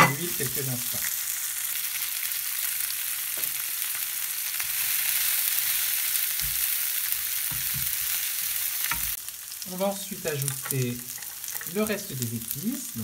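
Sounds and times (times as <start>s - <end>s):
beans sizzling in hot oil: 0.0s - 13.0s.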